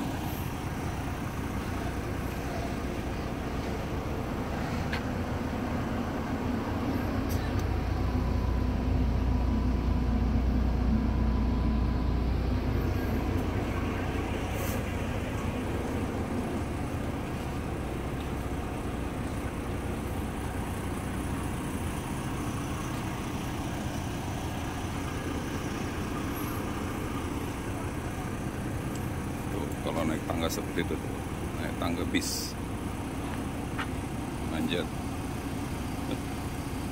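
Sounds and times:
diesel bus engine idling: 0:00.0 - 0:36.9
traffic noise: 0:00.0 - 0:36.9.

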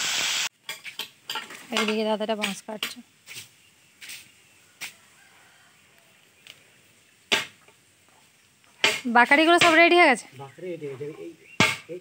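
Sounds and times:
blade chopping bamboo: 0:07.3 - 0:07.6, 0:11.6 - 0:11.9.

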